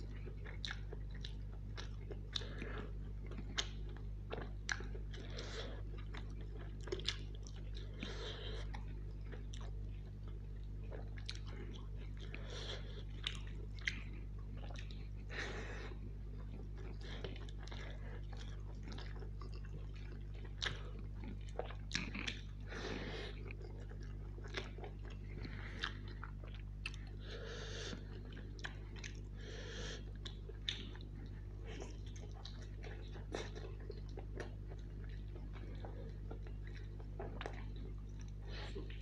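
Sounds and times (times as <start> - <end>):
man chewing and lip smacking: 0.0 - 39.0
steady low hum: 0.0 - 39.0.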